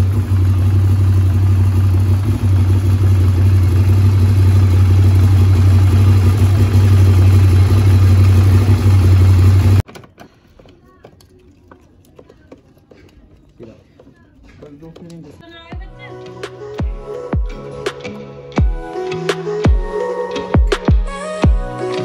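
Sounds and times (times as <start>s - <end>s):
motorcycle engine idling: 0.0s - 9.8s.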